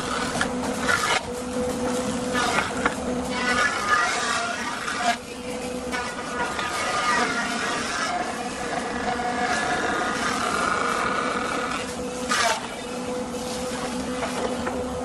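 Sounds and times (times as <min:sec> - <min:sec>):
planer cutterhead shaving board: 0:00.0 - 0:14.8
thickness planer whining: 0:00.0 - 0:15.0
loud rasp: 0:05.9 - 0:12.7.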